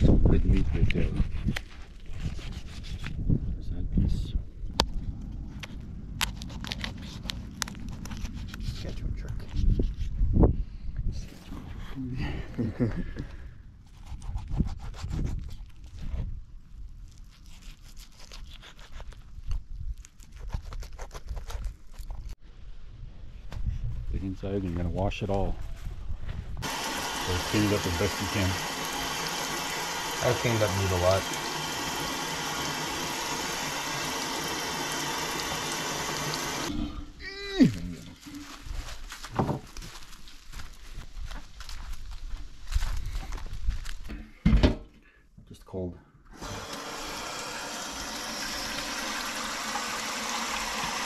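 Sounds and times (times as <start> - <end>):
knife crunching through bones: 6.2 - 8.8, 17.2 - 22.4
faucet spray into a steel sink: 26.6 - 36.6.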